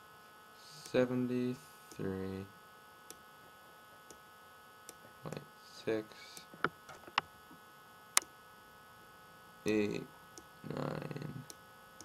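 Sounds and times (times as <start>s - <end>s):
electrical mains hum: 0.0s - 12.0s
man's wordless voice sounds: 9.7s - 11.5s.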